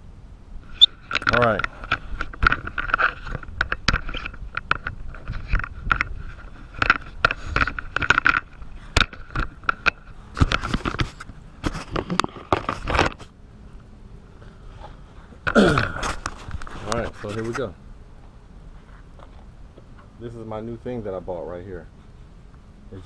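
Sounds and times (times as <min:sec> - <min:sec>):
strap and plastic handling noise: 0:01.0 - 0:13.3.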